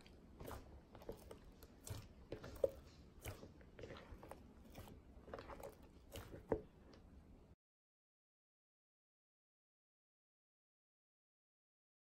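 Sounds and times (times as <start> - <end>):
slime crunching and squishing: 0.0 - 7.1.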